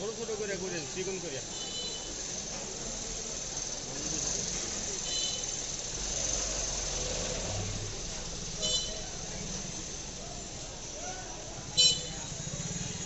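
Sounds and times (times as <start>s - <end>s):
street traffic: 0.0s - 13.0s
vehicle horn toots: 8.6s - 9.0s, 11.8s - 12.3s.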